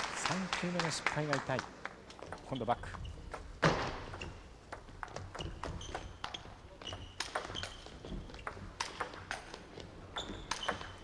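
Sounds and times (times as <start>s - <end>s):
table tennis ball clicks: 4.0s - 9.6s.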